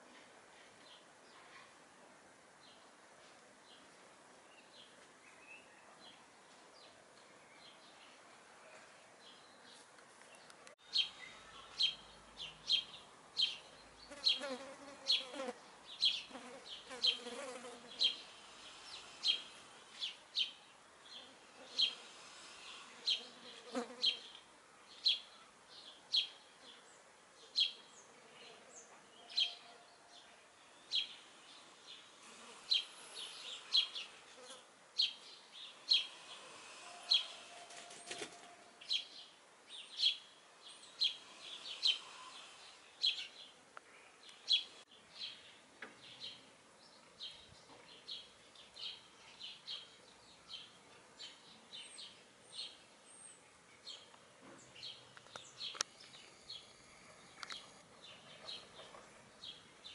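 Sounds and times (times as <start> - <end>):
wasps and flies buzzing: 14.1 - 20.1, 21.3 - 24.3, 32.1 - 38.4.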